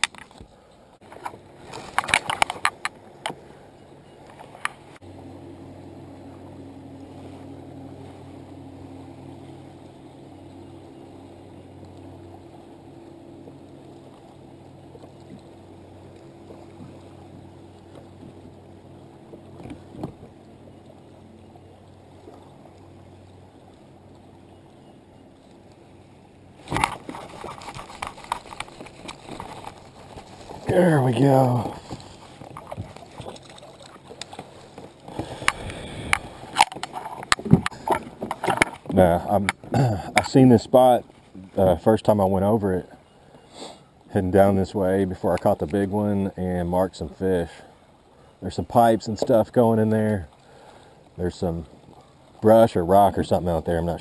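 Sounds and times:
motorboat engine drone: 0.0s - 54.0s
gear knocks and clicks: 26.6s - 40.4s.

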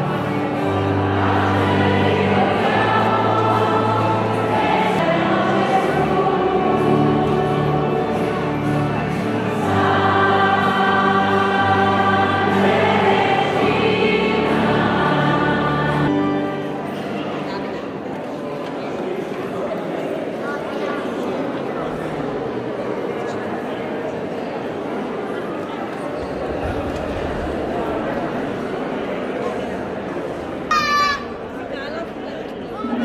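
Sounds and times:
choir singing a hymn: 0.0s - 16.9s, 22.9s - 30.6s.

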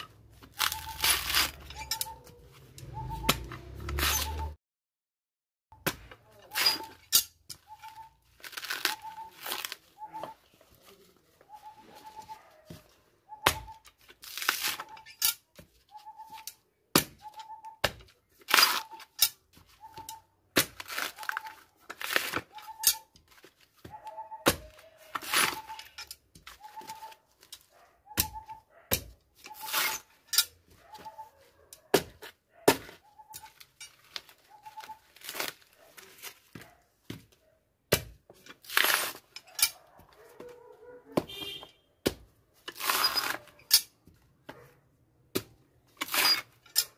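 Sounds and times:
coconut husk ripping: 0.2s - 1.9s, 7.8s - 10.1s, 14.0s - 15.0s, 18.4s - 19.2s, 20.5s - 22.7s, 24.7s - 25.9s, 34.0s - 36.6s, 38.4s - 39.4s, 42.6s - 43.6s, 46.0s - 46.6s.

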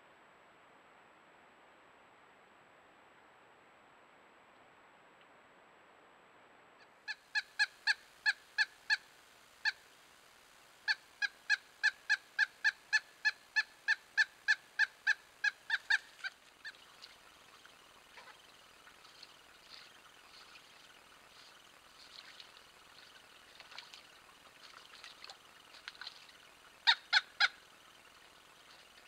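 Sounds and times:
woodpecker calling: 7.1s - 9.9s, 10.8s - 29.0s.

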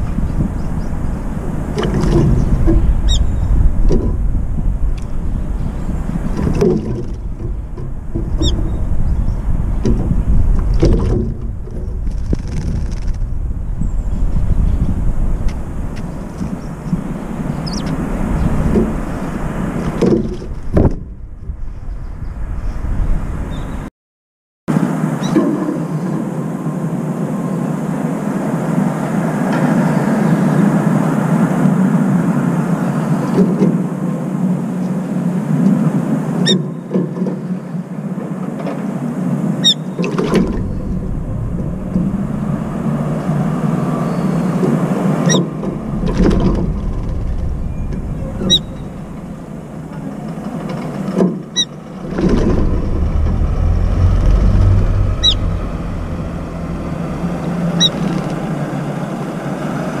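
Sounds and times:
city traffic hum: 0.0s - 23.9s, 24.7s - 60.0s
passing vehicles rumbling: 0.0s - 23.9s, 24.7s - 60.0s
high bird chirps: 2.4s - 3.5s, 16.5s - 18.0s, 47.6s - 49.6s, 55.1s - 56.3s, 57.4s - 58.3s.

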